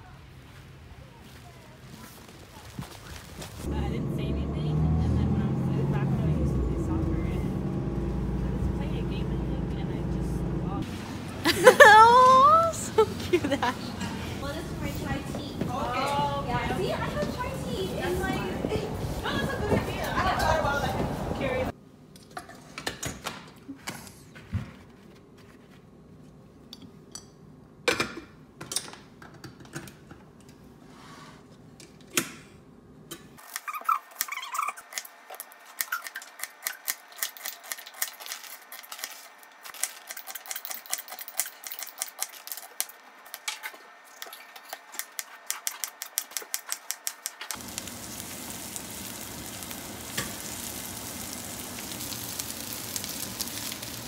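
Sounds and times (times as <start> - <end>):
onion sizzling in a pan: 47.5 - 54.0.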